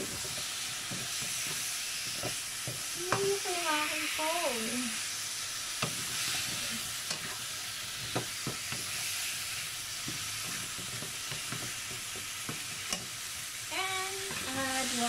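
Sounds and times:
food sizzling in a wok: 0.0s - 15.0s
spatula scraping a pan: 5.8s - 9.4s, 10.0s - 13.1s.

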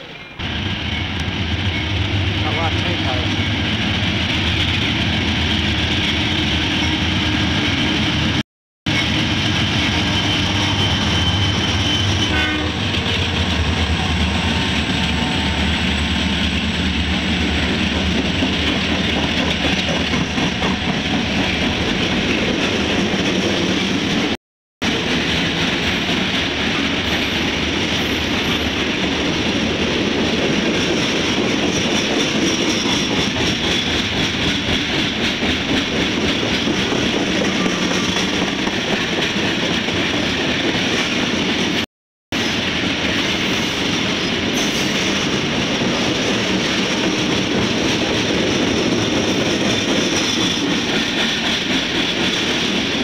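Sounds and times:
freight train rolling past: 0.0s - 41.8s, 42.4s - 53.0s.

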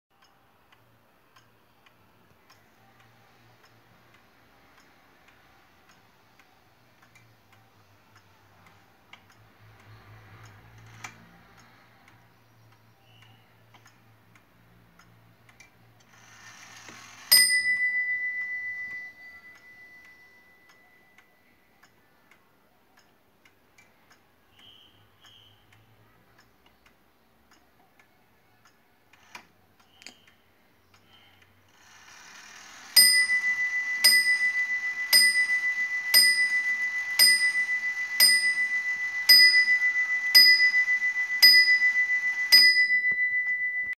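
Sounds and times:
clock ticking: 0.1s - 43.9s
clock bell ringing: 16.5s - 21.2s, 32.4s - 43.9s.

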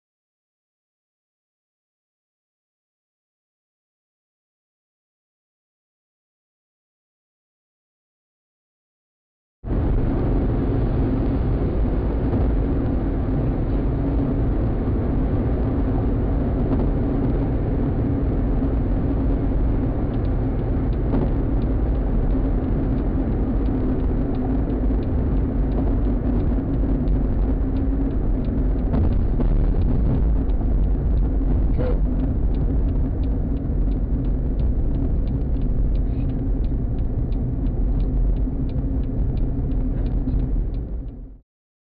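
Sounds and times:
car road and engine noise: 9.7s - 41.4s.

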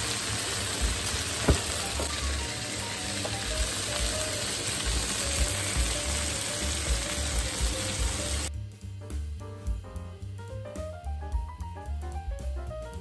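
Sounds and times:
food sizzling in oil: 0.0s - 8.5s.

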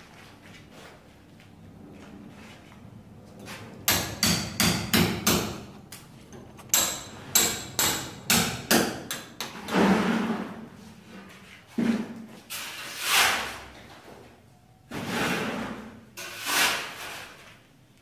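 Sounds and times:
hammer striking brick wall: 3.9s - 5.9s, 6.7s - 9.6s
rough scraping noise: 9.6s - 13.8s, 14.9s - 17.6s.

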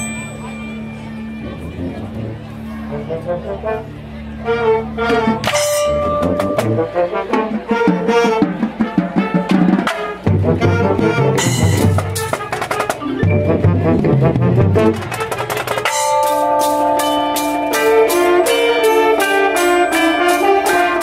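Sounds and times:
saxophones: 0.0s - 21.0s
brass playing: 1.4s - 21.0s
pit percussion and drums: 5.2s - 21.0s.

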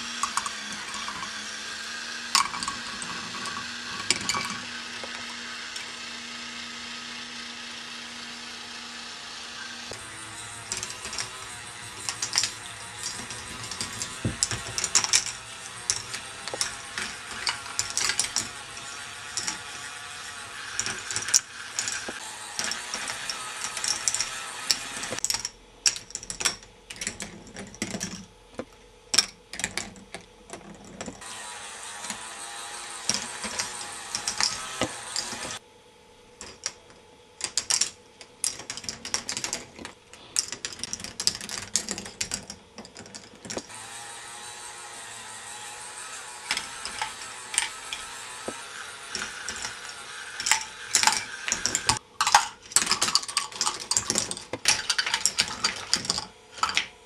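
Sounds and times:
plastic balls clicking on tracks: 0.0s - 5.9s, 9.9s - 28.3s, 33.0s - 35.6s, 36.4s - 43.7s, 46.4s - 57.0s
chain lift whirring: 0.0s - 6.0s, 9.6s - 25.3s, 30.7s - 35.6s, 44.5s - 56.8s.

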